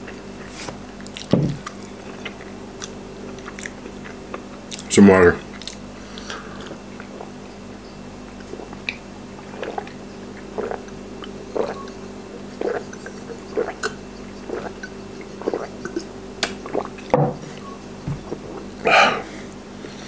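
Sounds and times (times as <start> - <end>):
man gulping water: 8.3 - 17.2, 18.1 - 19.3.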